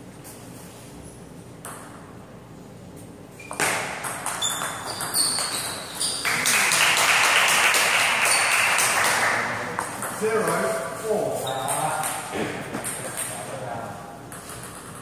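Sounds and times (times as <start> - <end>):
shoe squeaks on floor: 3.4 - 6.5, 11.4 - 12.0.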